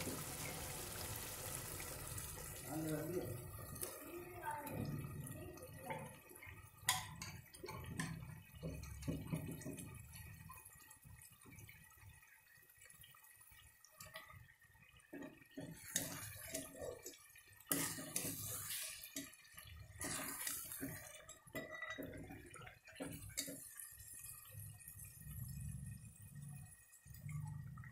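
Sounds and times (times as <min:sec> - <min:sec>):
gravy sloshing: 0:15.0 - 0:24.9.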